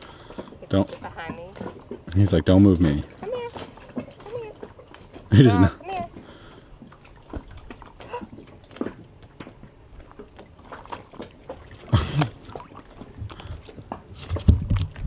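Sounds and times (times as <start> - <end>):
small waves lapping: 0.0 - 15.0
dull bump on paddleboard: 10.7 - 15.0.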